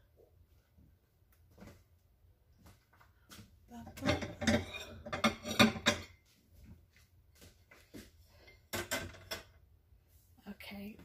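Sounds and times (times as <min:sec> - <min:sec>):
dishes and cutlery clattering: 0:03.8 - 0:06.3, 0:08.4 - 0:09.6.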